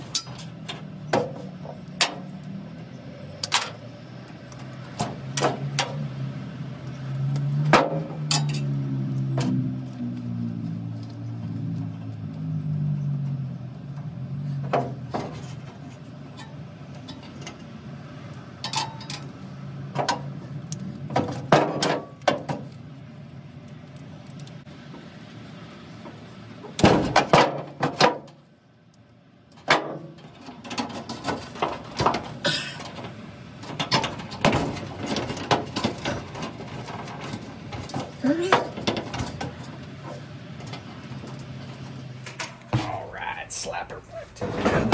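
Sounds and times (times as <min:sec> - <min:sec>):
wire and tape clicks and rustles: 0:20.0 - 0:24.8.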